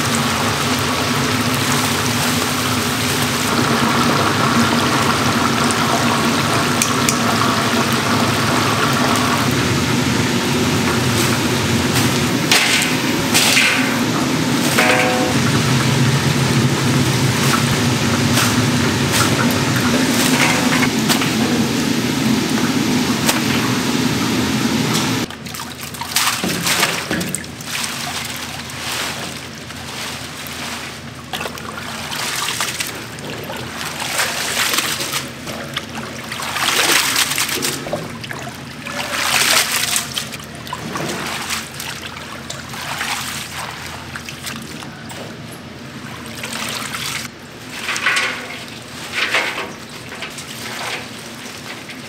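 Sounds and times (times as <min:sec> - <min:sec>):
loud steady rushing noise: 0:10.2 - 0:25.3
water splashing and trickling: 0:25.2 - 0:52.0.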